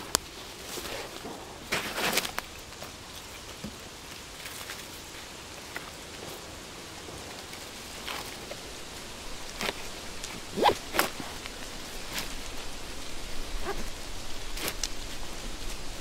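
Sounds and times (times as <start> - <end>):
steady soft hiss: 0.0 - 16.0
backpack rustling: 8.0 - 15.9.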